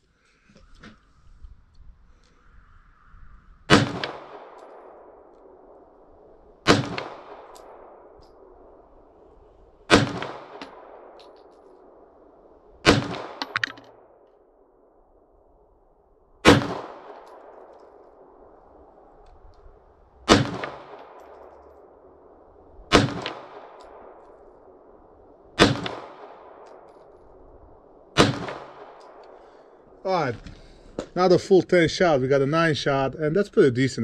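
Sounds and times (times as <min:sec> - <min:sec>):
pistol shots with echo: 0:03.7 - 0:05.1, 0:06.6 - 0:08.1, 0:09.9 - 0:11.4, 0:12.8 - 0:14.2, 0:16.4 - 0:17.9, 0:20.3 - 0:21.2, 0:22.9 - 0:24.2, 0:25.6 - 0:26.9, 0:28.2 - 0:29.4.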